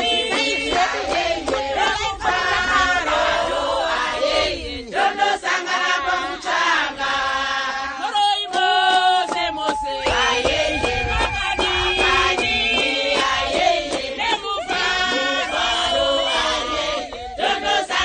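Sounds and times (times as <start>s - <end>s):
hand claps: 0.0s - 2.4s, 8.1s - 18.0s
women singing together: 0.0s - 18.0s.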